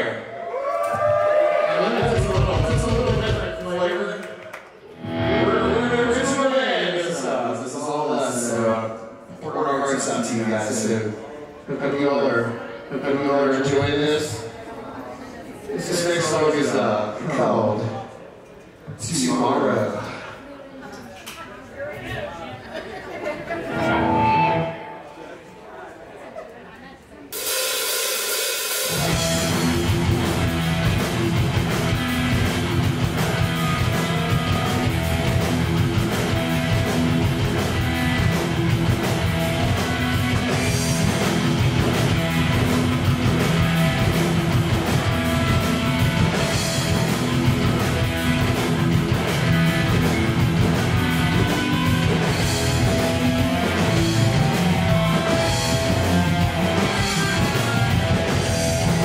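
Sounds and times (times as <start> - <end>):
live rock band playing: 2.0 - 3.7, 4.9 - 6.5, 23.6 - 25.1, 27.3 - 59.0.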